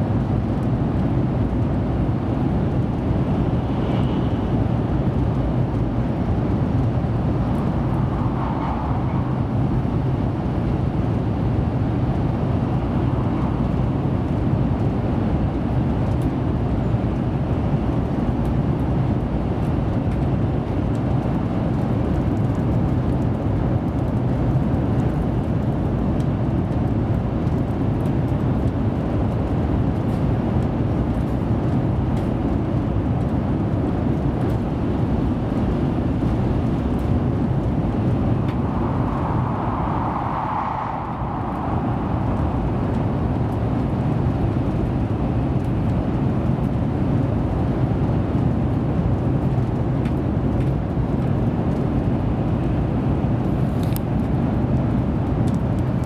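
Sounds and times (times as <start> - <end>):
train cabin low rumble: 1.4 - 16.2, 35.4 - 46.8.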